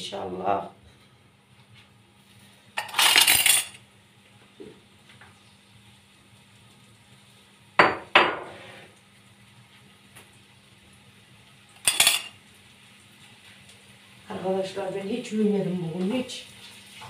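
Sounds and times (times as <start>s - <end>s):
dishes and utensils clattering: 2.8s - 3.8s, 11.8s - 12.4s.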